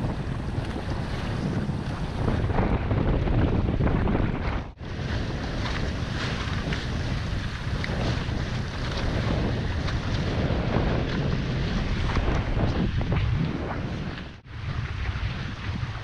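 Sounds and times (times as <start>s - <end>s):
rushing water: 0.0s - 16.0s
wind buffeting microphone: 0.0s - 16.0s
hulls splashing through water: 4.4s - 16.0s.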